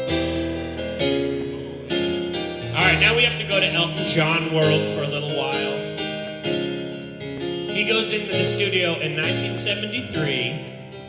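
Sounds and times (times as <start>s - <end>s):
digital keyboard piano: 0.0s - 11.0s
man singing: 2.8s - 5.9s, 7.7s - 10.7s.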